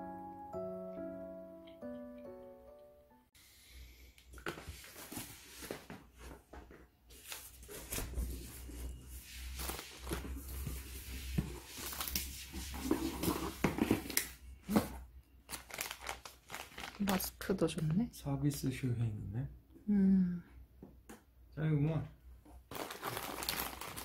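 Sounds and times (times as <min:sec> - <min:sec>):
plastic packaging rustling: 0:07.2 - 0:18.0, 0:22.6 - 0:24.0.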